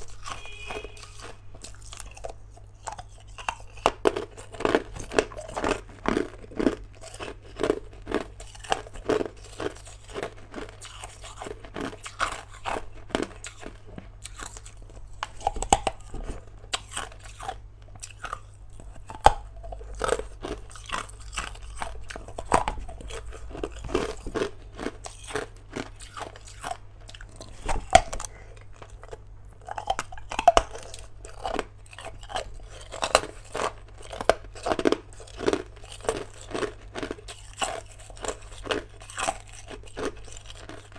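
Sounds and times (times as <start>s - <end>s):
person crunching ice: 0.0s - 18.5s, 19.1s - 40.9s.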